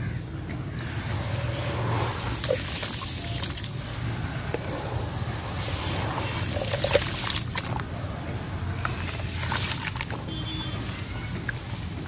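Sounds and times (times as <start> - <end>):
hands sloshing in muddy water: 9.0 - 10.2.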